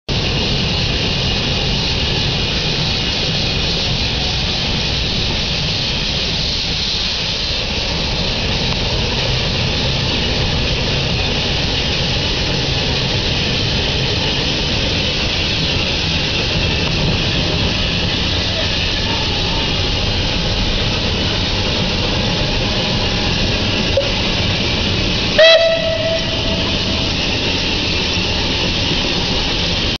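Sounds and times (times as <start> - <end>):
steam locomotive hissing: 0.1 - 30.0
low rumble: 16.2 - 29.9.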